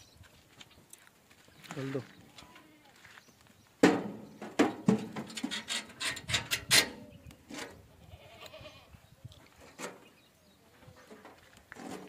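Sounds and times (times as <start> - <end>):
animal knocking against metal bars: 3.8 - 6.9.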